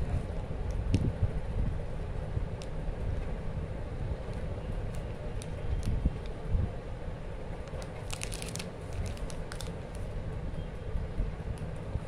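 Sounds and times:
plastic packaging crinkling: 7.7s - 10.0s.

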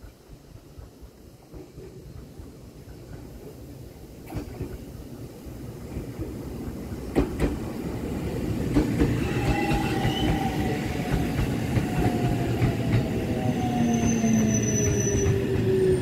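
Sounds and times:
train rumble: 0.0s - 16.0s.

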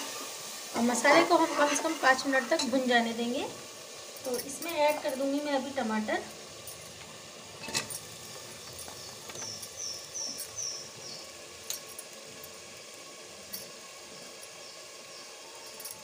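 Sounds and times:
masala sizzling in pot: 0.0s - 16.0s
high chirps: 8.7s - 11.4s.

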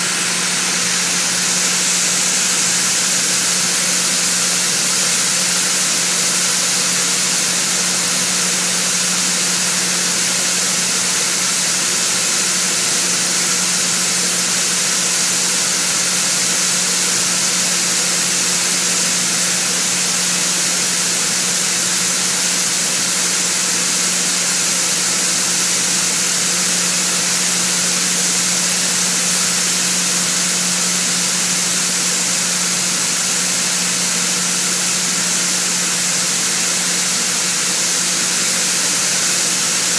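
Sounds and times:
machinery humming: 0.0s - 8.4s
strong hiss: 0.0s - 39.9s.

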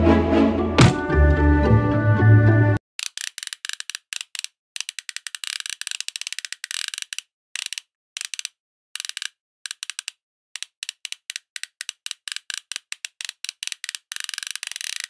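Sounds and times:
fishing reel clicking: 3.0s - 15.0s.

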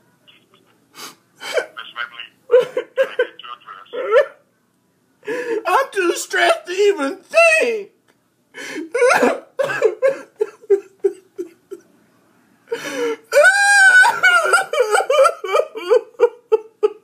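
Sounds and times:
man fake crying: 1.4s - 1.8s, 2.5s - 4.4s, 8.8s - 11.8s, 12.9s - 17.0s.

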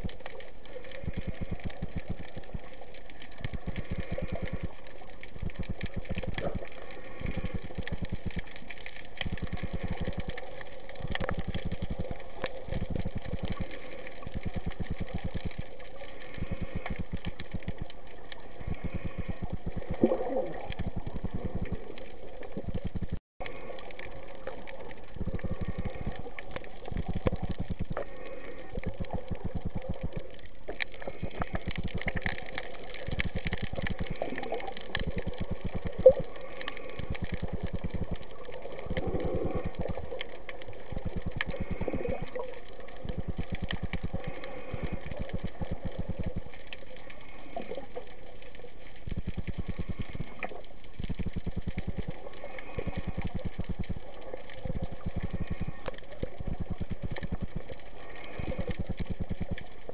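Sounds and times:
rapid low underwater pulsing: 0.0s - 59.9s
water swishing: 0.0s - 59.9s.

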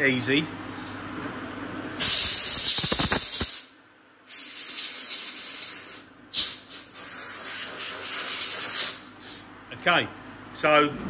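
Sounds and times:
compressed air blow gun hissing: 2.0s - 3.7s, 4.3s - 9.1s.

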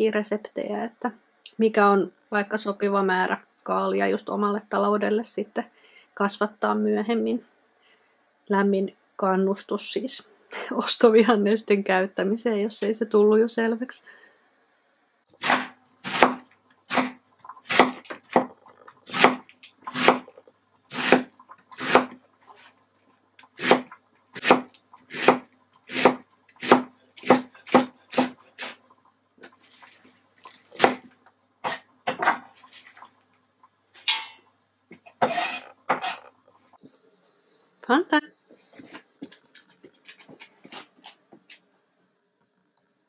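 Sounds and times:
knife slicing cabbage on wooden board: 15.4s - 18.5s, 19.1s - 20.3s, 20.9s - 22.2s, 23.6s - 28.8s.

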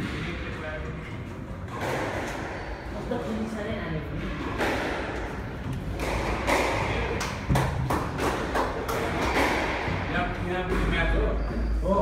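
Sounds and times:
squash ball hitting court walls: 1.6s - 2.7s, 4.1s - 11.3s.

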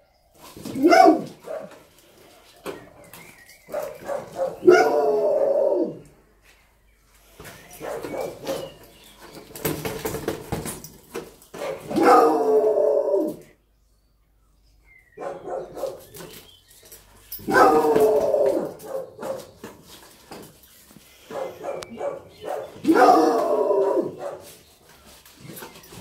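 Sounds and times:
dog barking: 0.8s - 1.8s, 3.7s - 6.0s, 7.8s - 8.6s, 11.6s - 12.5s, 15.2s - 16.1s, 17.5s - 19.6s, 21.3s - 24.6s.

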